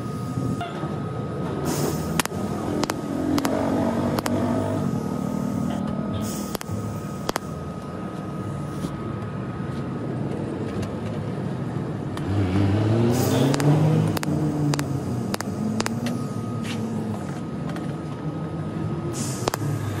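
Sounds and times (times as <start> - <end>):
steady background hum: 0.0 - 20.0
vehicle engine rising and falling: 0.0 - 20.0
sharp clicks: 2.0 - 4.4, 6.4 - 7.5, 13.2 - 16.3, 19.4 - 19.7.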